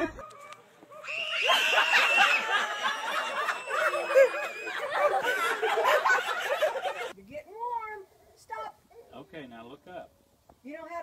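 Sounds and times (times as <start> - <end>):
people laughing together: 1.4 - 7.2.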